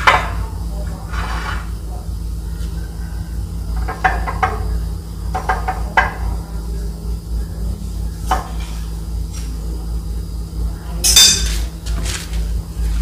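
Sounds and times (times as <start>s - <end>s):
low hum: 12.3s - 13.0s.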